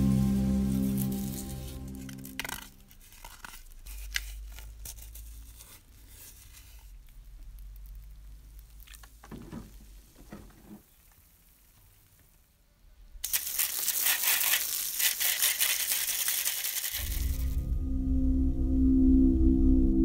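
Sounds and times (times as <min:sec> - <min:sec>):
hissing spattering water jet: 0:13.2 - 0:17.3.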